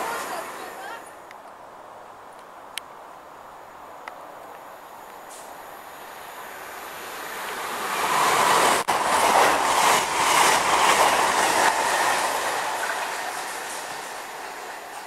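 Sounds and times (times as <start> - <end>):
train wheels on rail: 4.5 - 15.0.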